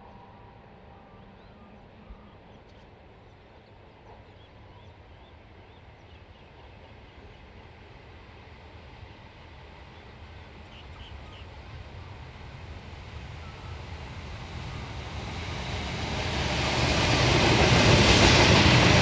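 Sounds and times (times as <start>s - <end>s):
diesel locomotive rumble: 10.0s - 19.0s.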